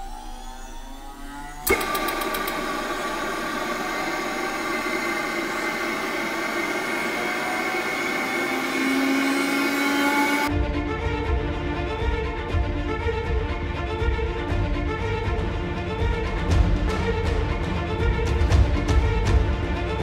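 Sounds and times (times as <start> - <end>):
generator mechanical whine: 0.0 - 10.5
starter clicks: 1.6 - 8.8.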